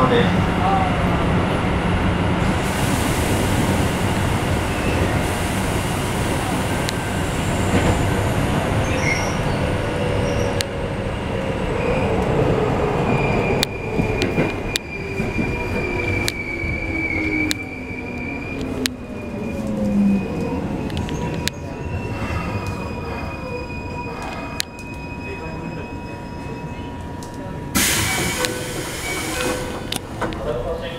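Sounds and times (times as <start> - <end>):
train running gear rumble: 0.0 - 30.9
high squeal: 13.0 - 27.0.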